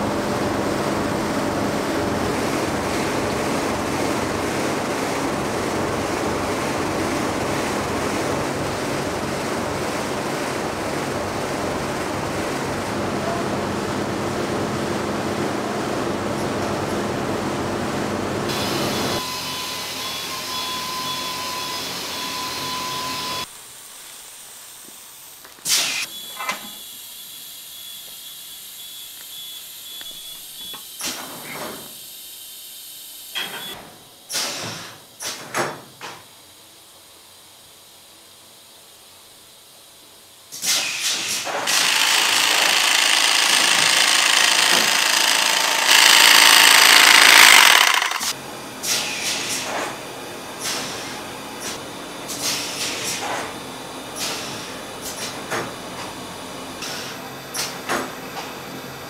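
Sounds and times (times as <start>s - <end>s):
factory machinery running: 0.0s - 23.5s, 40.6s - 59.0s
machine high whine: 17.5s - 23.5s, 26.0s - 31.0s, 41.7s - 48.8s.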